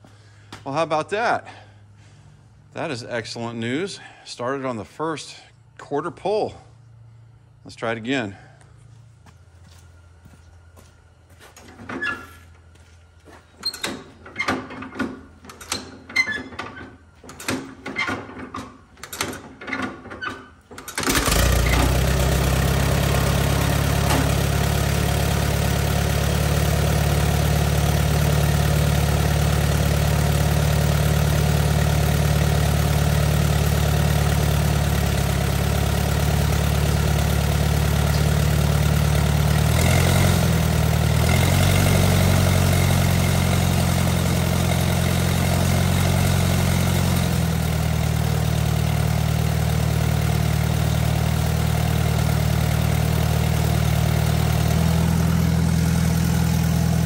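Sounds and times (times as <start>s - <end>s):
tractor engine cranking: 13.6s - 57.0s
tractor engine idling: 20.7s - 57.0s.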